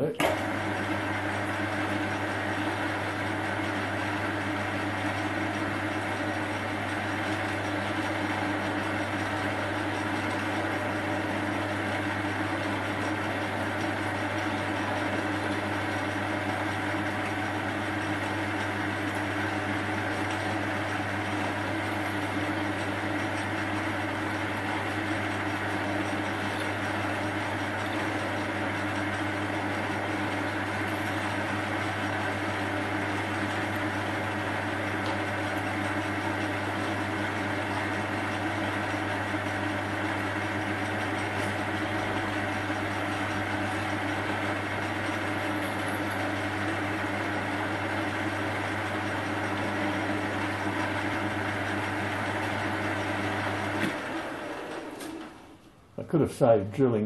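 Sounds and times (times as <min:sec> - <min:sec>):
metal lathe drilling a bolt: 0:17.1 - 0:46.9.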